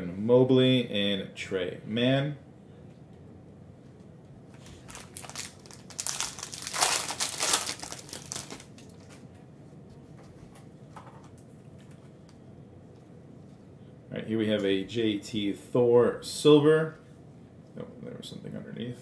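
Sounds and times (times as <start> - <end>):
foil wrapper crinkling: 4.6 - 9.2.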